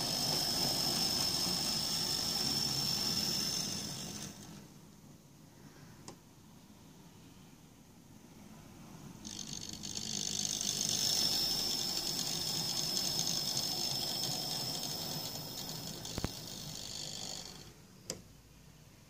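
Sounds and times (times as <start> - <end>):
model train motor whining: 0.0 - 4.7, 9.2 - 17.7.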